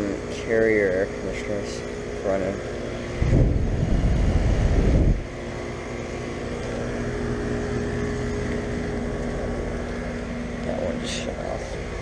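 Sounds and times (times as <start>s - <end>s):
air conditioner units humming: 0.0s - 12.0s
wind buffeting microphone: 3.0s - 5.4s.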